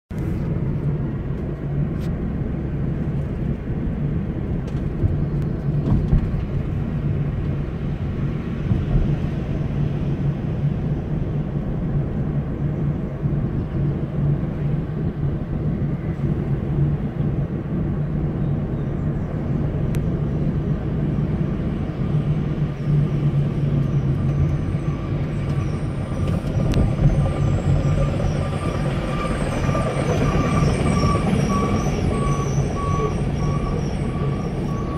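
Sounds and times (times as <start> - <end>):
heavy diesel engines rumbling: 0.1 - 34.9
high-pitched steady tones: 24.1 - 34.9.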